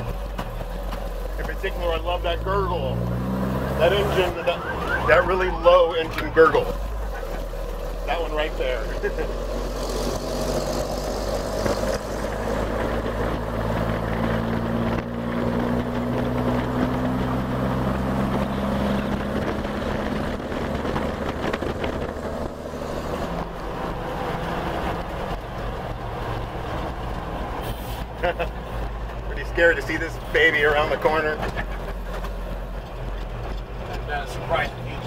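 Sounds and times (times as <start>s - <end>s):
fire engine engine gurgle: 0.0s - 35.0s
road and wind noise: 0.0s - 35.0s.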